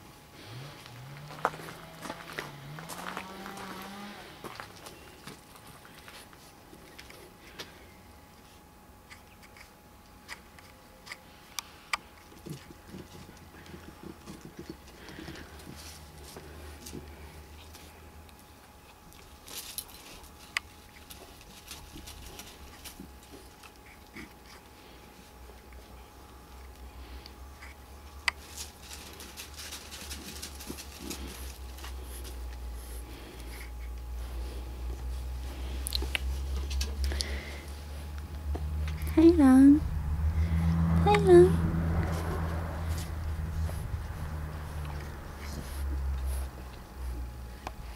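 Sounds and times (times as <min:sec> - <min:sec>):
low hum: 0:00.0 - 0:47.9
paws crunching on gravel: 0:00.4 - 0:07.6, 0:19.2 - 0:23.8, 0:28.3 - 0:33.4.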